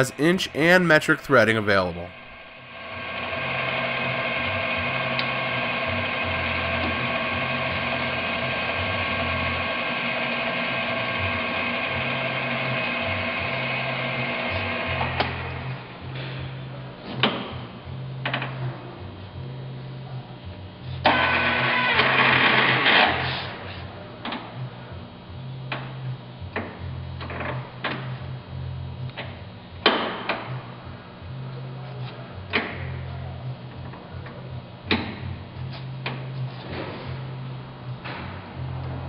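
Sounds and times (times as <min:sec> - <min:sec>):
background music: 0:00.0 - 0:02.6.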